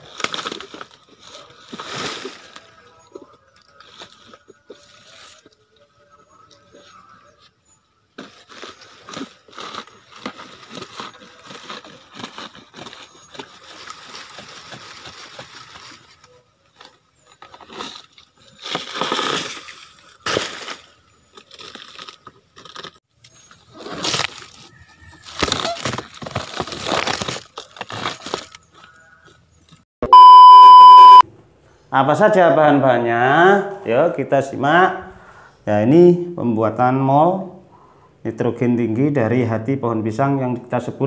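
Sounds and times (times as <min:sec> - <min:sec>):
fibrous leaves tearing: 0:08.2 - 0:23.0, 0:23.6 - 0:28.9.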